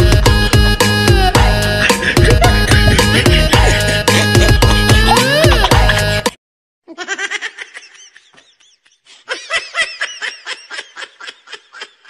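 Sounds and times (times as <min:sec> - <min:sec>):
music with drum beat: 0:00.0 - 0:06.3
laughter in quick pulses: 0:01.8 - 0:06.2, 0:06.9 - 0:12.0.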